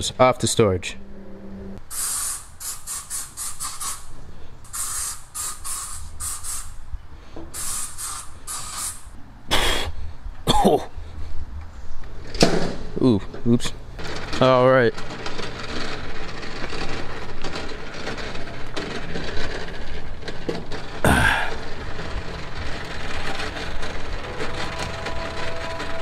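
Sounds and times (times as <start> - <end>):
aerosol spray hissing: 1.9 - 4.1, 4.7 - 6.8, 7.6 - 9.2.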